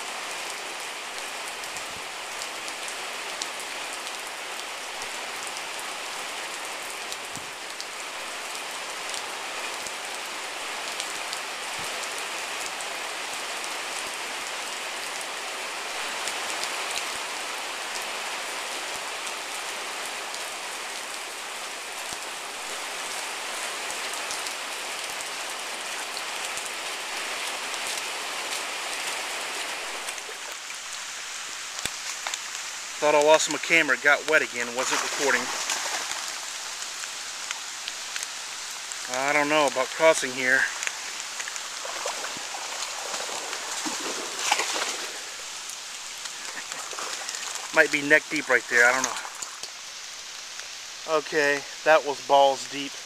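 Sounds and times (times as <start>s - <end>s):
rain falling: 0.0s - 53.0s
close raindrop hits: 22.0s - 53.0s.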